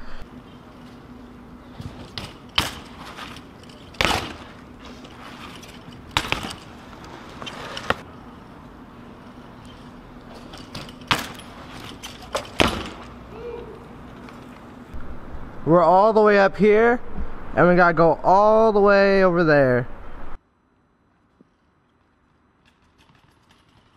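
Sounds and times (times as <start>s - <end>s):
faint hum: 0.0s - 22.7s
bike clattering on concrete: 0.5s - 8.5s, 9.2s - 13.5s, 22.6s - 23.9s.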